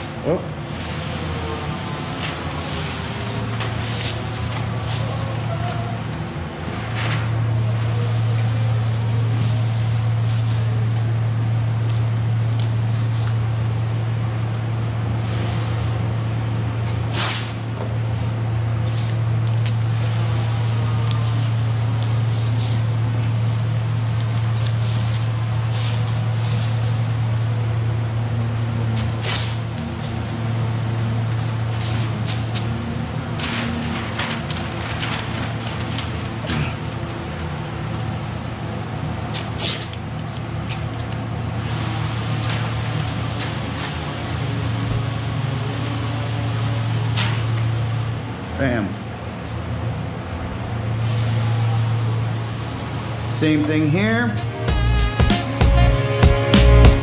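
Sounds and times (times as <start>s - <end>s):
low machine hum: 17.6s - 39.2s
plastic sheet crinkling: 33.3s - 36.4s
masking tape ripping off roll: 39.3s - 39.9s.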